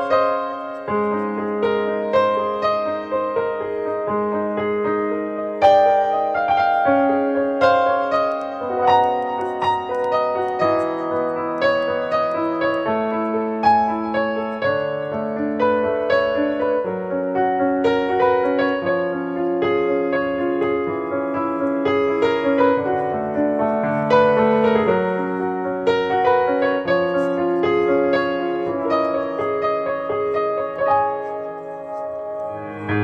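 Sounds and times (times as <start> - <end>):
gentle piano music: 0.0 - 33.0.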